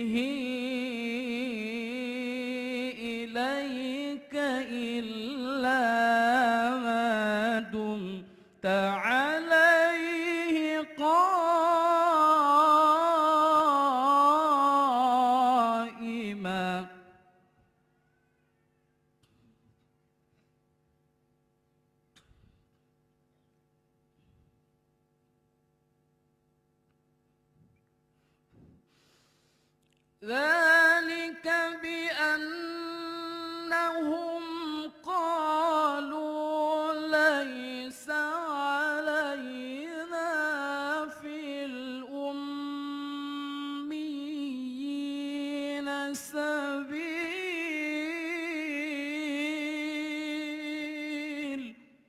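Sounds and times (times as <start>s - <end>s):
man chanting melodic recitation: 30.2s - 51.8s.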